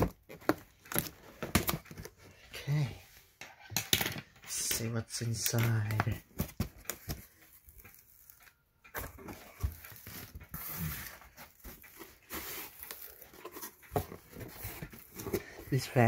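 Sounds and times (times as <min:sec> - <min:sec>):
cardboard flaps rustling and scraping: 0:09.0 - 0:16.0.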